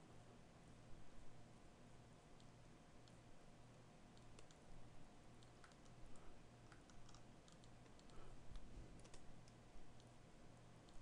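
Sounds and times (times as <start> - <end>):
low steady hum: 0.0 - 11.0
mouse and keyboard clicks: 4.1 - 4.6, 5.4 - 6.0, 6.6 - 10.1.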